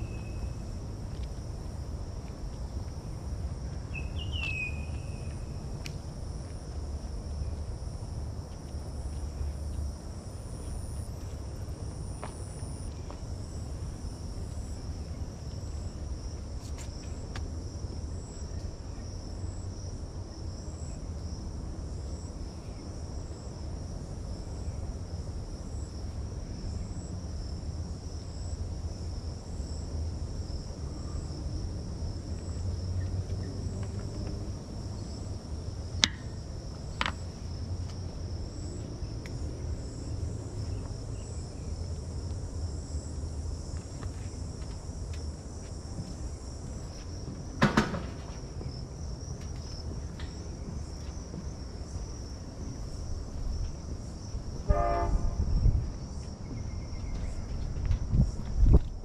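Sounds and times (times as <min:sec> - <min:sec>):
insect high-pitched trill: 0:00.0 - 0:00.8, 0:03.8 - 0:05.8
pulsing higher insect trill: 0:00.0 - 0:01.0.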